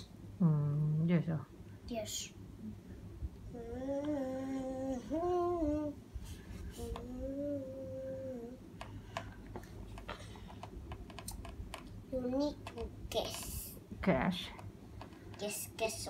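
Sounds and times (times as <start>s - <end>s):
person humming long notes: 3.5s - 6.0s, 6.7s - 8.6s.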